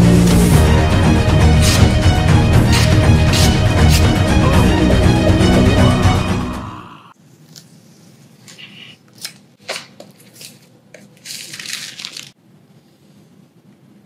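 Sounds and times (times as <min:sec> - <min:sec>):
plastic wrapping rustling: 0:08.5 - 0:12.4.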